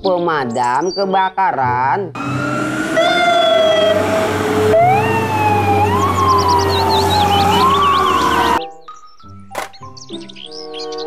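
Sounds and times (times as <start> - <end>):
fire engine siren wailing: 2.2 - 8.6.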